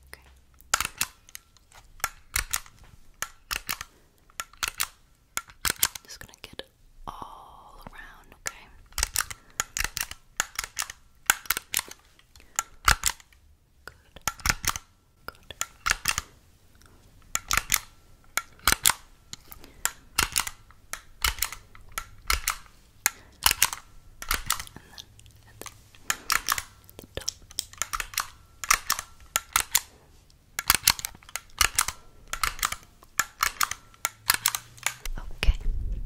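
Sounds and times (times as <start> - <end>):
sharp mechanical gadget clicks: 0.6 - 6.2, 8.8 - 13.4, 14.2 - 14.9, 15.5 - 16.3, 17.2 - 25.0, 25.6 - 29.9, 30.6 - 35.2.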